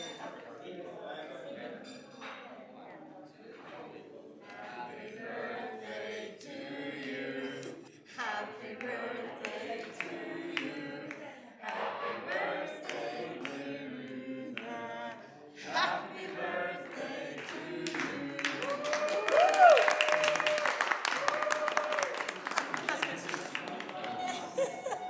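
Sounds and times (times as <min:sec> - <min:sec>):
group singing unaccompanied: 0:03.9 - 0:19.0.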